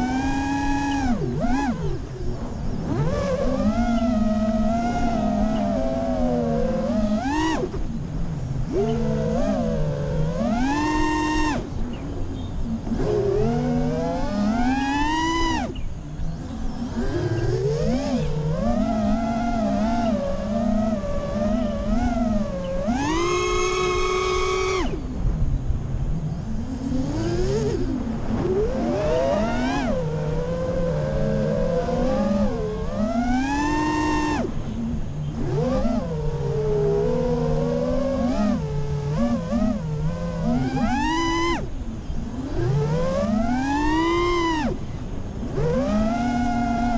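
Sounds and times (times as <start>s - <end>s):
drone motors whining: 0.0s - 46.9s.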